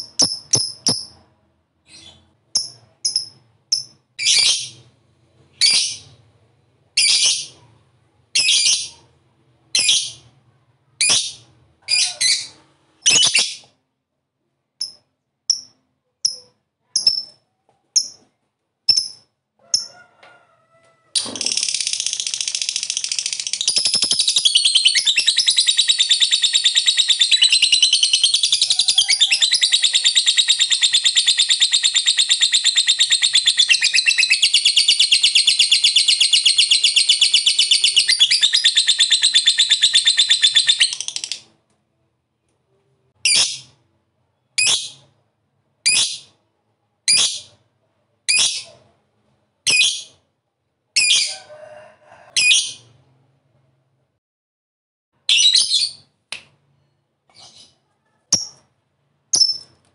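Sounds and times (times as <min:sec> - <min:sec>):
bird chattering trill: 0:21.5 - 0:41.4.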